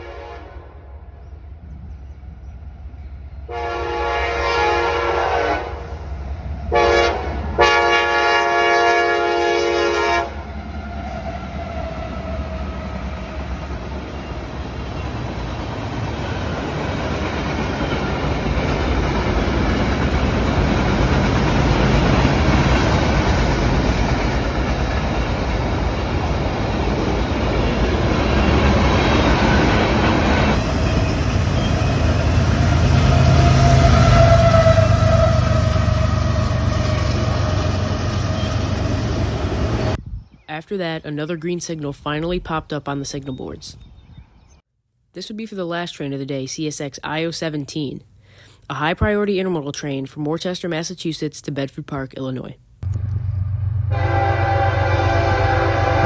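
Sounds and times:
train air horn blasts: 0:00.0 - 0:01.0, 0:03.5 - 0:06.0, 0:06.7 - 0:10.5, 0:32.2 - 0:37.9, 0:53.8 - 0:56.0
freight train rolling on rails: 0:01.4 - 0:40.0.

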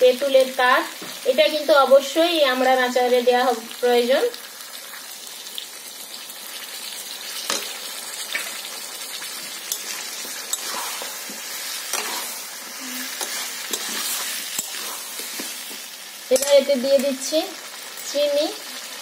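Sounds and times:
food sizzling in oil: 0:00.0 - 0:19.0
metal spatula scraping a pan: 0:09.4 - 0:17.0.

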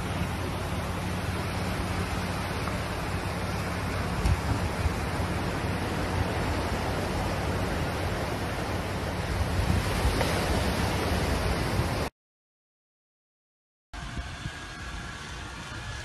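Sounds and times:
surf washing on beach: 0:00.0 - 0:12.1
wind on microphone: 0:01.8 - 0:12.1, 0:14.0 - 0:16.0.

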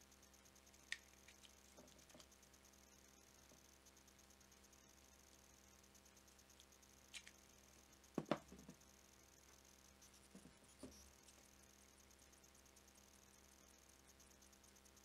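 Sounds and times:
plastic battery clicks and knocks: 0:08.2 - 0:08.8.

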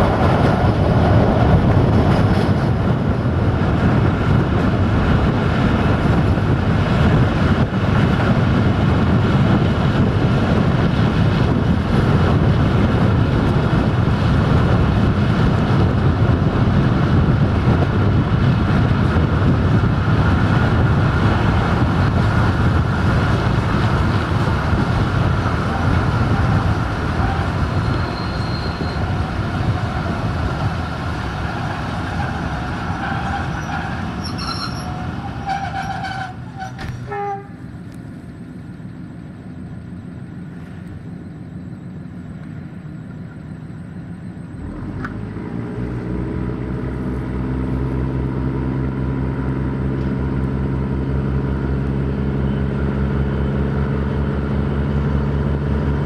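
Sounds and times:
diesel engine throttling up: 0:00.0 - 0:34.3, 0:35.0 - 0:56.0
railcar wheels and engine running: 0:00.0 - 0:56.0
high-pitched wheel squeal: 0:25.6 - 0:30.2, 0:31.4 - 0:37.6.

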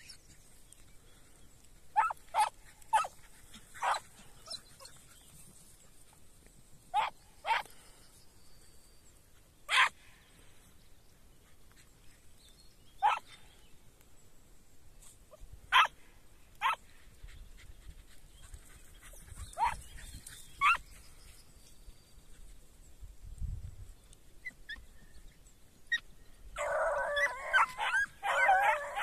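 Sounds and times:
hounds yelping barks: 0:01.9 - 0:05.2, 0:06.9 - 0:07.8, 0:09.7 - 0:10.0, 0:13.0 - 0:13.4, 0:15.7 - 0:16.0, 0:16.6 - 0:16.8, 0:19.0 - 0:20.9, 0:26.6 - 0:29.0.

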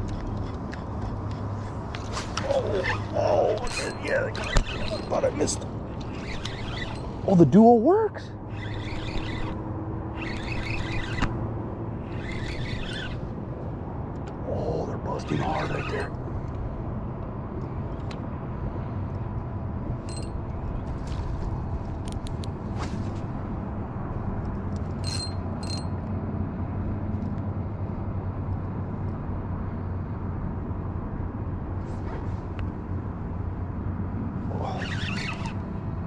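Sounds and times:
fishing reel cranking: 0:03.6 - 0:07.3, 0:08.5 - 0:11.4, 0:12.0 - 0:13.2, 0:15.2 - 0:16.1, 0:25.0 - 0:25.9, 0:34.7 - 0:35.6.

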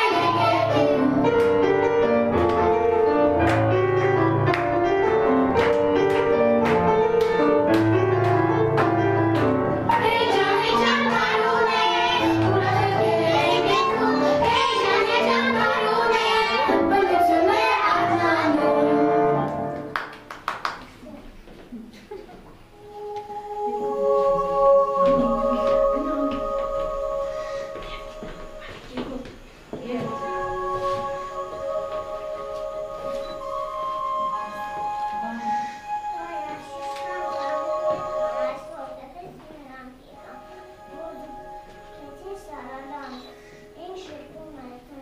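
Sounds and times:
children singing: 0:00.0 - 0:03.6, 0:08.6 - 0:19.6, 0:22.7 - 0:29.1, 0:29.8 - 0:39.0
recorded backing music: 0:00.0 - 0:20.3, 0:22.7 - 0:45.0.

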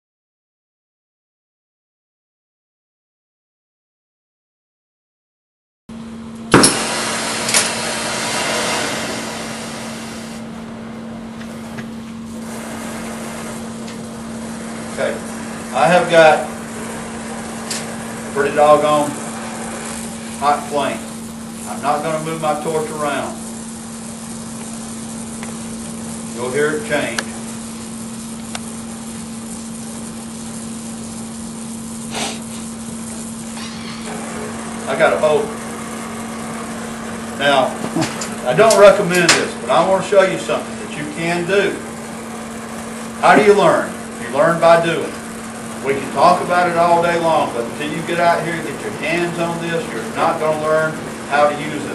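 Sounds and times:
torch flame hissing: 0:06.4 - 0:51.9
torch ignition pop: 0:06.5 - 0:10.2, 0:37.8 - 0:39.6
low hum: 0:32.1 - 0:38.3.

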